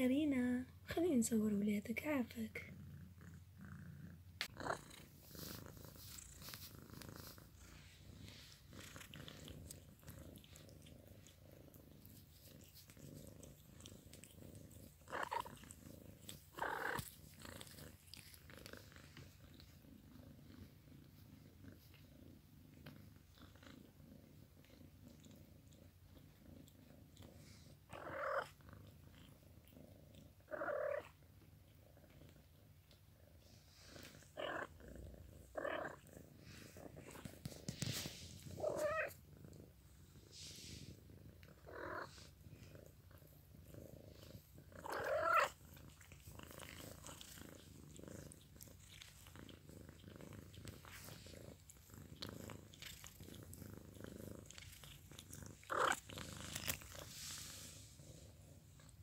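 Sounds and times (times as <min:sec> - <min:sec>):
cat purring: 0:00.0 - 0:59.0
kitten mewing: 0:38.6 - 0:39.2.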